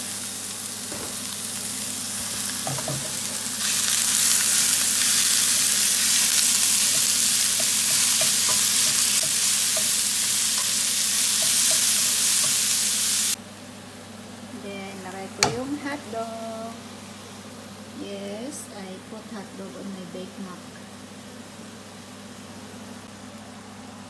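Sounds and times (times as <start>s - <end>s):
meat sizzling in a frying pan: 0.0s - 13.4s
spatula stirring in pan: 5.0s - 12.7s.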